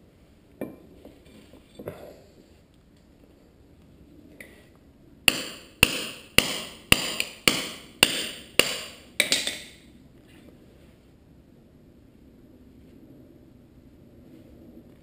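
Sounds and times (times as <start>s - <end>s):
hammer tapping steel socket: 7.1s - 9.8s.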